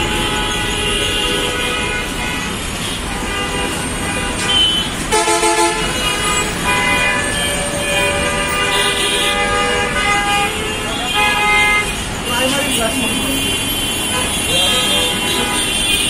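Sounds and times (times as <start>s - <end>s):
traffic rumble: 0.0s - 16.0s
vehicle horns honking: 0.0s - 16.0s
loud low horn: 5.1s - 11.0s.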